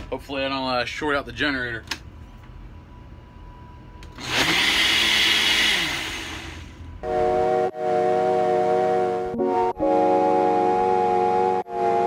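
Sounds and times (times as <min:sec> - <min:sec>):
blender motor running: 0:04.2 - 0:06.7
music with held chords: 0:07.0 - 0:12.0.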